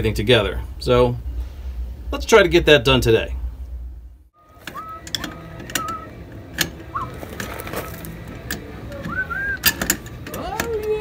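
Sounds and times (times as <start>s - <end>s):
metallic clicks of hand tools: 8.4s - 11.0s.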